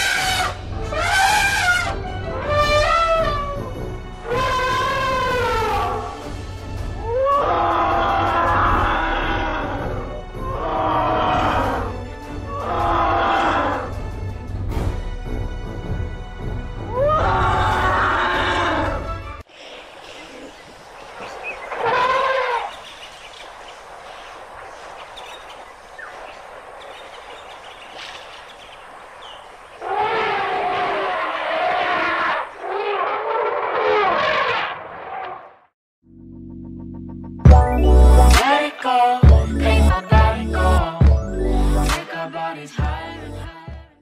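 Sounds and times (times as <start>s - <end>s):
elephant trumpeting: 0.0s - 6.2s, 7.0s - 11.9s, 12.5s - 13.9s, 16.9s - 19.1s, 21.2s - 22.8s, 29.2s - 35.6s
steady outdoor hiss: 19.5s - 30.0s
music with strong bass and beat: 36.7s - 38.5s, 39.2s - 42.0s.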